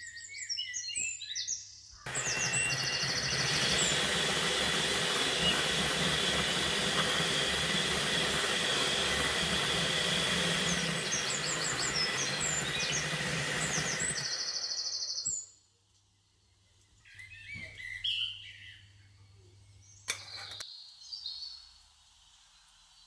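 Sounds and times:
electric hand mixer running: 2.1s - 15.2s.

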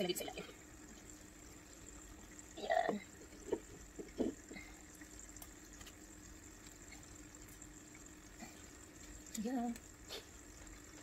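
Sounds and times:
aquarium water trickling: 0.0s - 11.0s
steady low hum: 0.0s - 11.0s.

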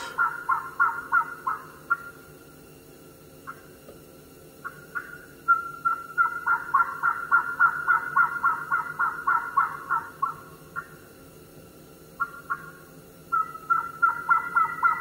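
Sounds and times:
electronic turkey yelps: 13.4s - 15.0s.

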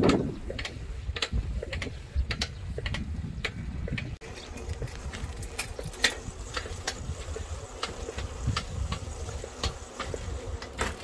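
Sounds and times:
bicycle ticking: 0.0s - 11.0s
wind rumbling on microphone: 0.0s - 11.0s.

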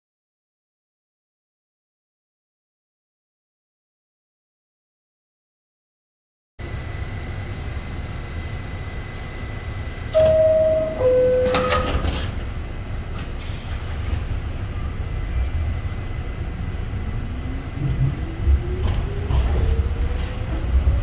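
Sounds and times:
train low rumble: 6.6s - 21.0s
traction motor rising whine: 6.7s - 21.0s
two-tone door chime: 10.1s - 12.4s.

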